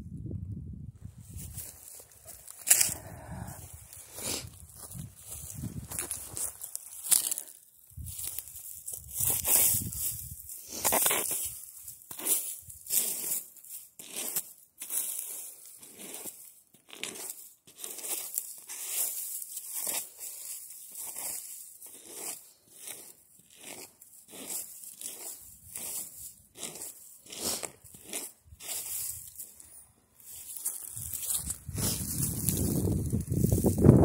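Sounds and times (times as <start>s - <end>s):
footsteps on grass and sand: 1.0s - 13.8s, 17.3s - 34.0s.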